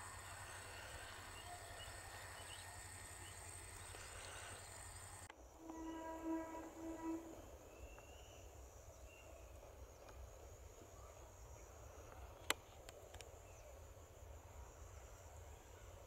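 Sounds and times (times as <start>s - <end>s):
high insect buzz: 0.0s - 7.6s
faint train rumble: 0.0s - 16.0s
distant train horn: 5.6s - 7.5s.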